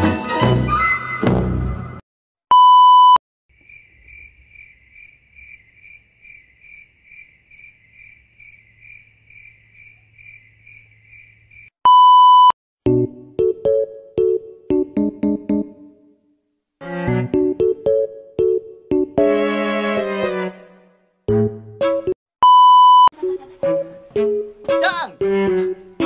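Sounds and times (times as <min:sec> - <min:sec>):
music: 0:00.0 - 0:02.0, 0:12.8 - 0:16.2, 0:16.8 - 0:22.2, 0:23.2 - 0:26.0
crickets chirping: 0:03.5 - 0:11.8.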